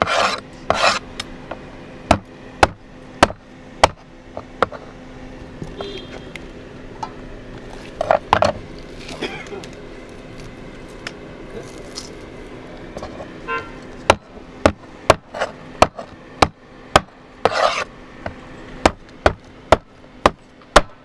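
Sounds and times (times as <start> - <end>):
cleaver chopping on wooden board: 2.1 - 4.0, 14.1 - 17.8, 18.8 - 21.0.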